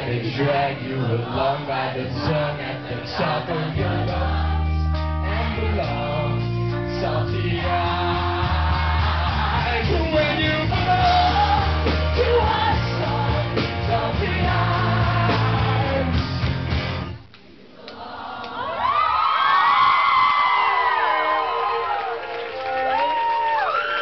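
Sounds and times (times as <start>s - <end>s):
man singing: 0.0s - 4.2s, 5.2s - 8.0s, 9.6s - 16.2s
live rock band playing: 3.6s - 17.2s.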